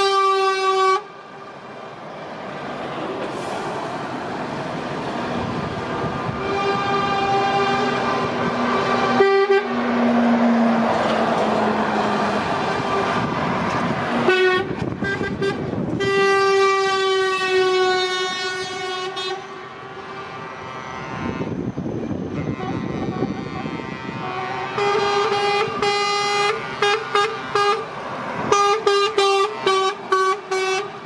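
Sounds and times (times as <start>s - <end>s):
truck air horn blasts: 0.0s - 1.1s, 6.3s - 9.8s, 14.2s - 21.6s, 22.3s - 27.9s, 28.5s - 31.0s
diesel engines: 0.0s - 31.0s.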